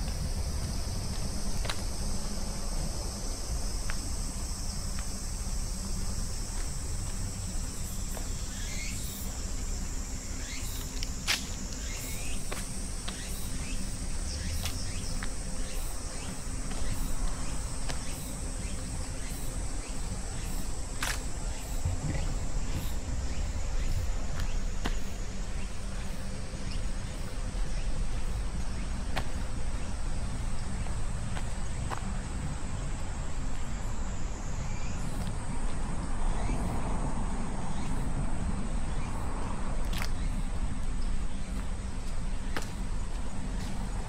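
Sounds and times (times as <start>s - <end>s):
insects singing: 0.0s - 44.0s
low rumble: 11.5s - 31.1s.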